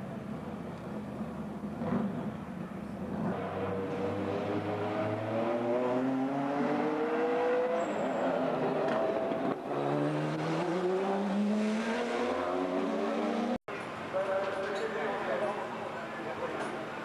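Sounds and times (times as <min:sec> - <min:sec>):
race car engine accelerating: 0:03.1 - 0:13.6.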